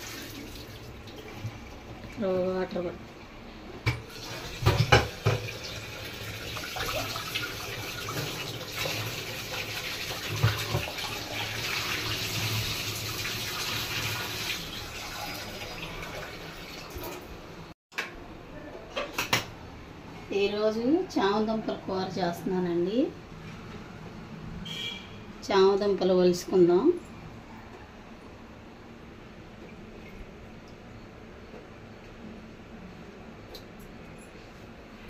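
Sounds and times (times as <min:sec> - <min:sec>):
tap water running into a pot: 0:00.0 - 0:02.2, 0:03.9 - 0:17.3.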